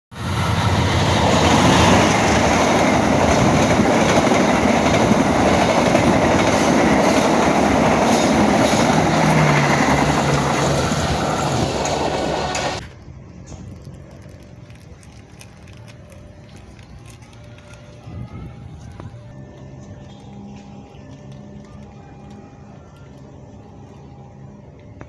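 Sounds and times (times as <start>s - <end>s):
locomotive passing: 0.1s - 25.0s
train wheels clattering on rails: 0.5s - 12.8s.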